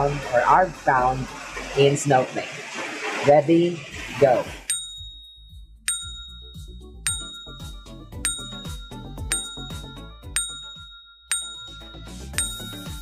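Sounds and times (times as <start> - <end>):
low background music: 4.0 - 13.0
bell-like ding: 4.7 - 13.0.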